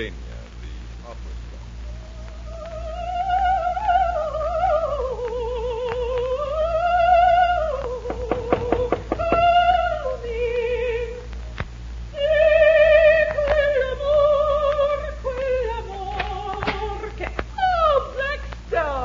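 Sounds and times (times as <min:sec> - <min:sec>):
soprano singing opera: 0:01.9 - 0:11.3, 0:12.1 - 0:19.0
sharp taps: 0:07.7 - 0:09.8, 0:16.1 - 0:17.5.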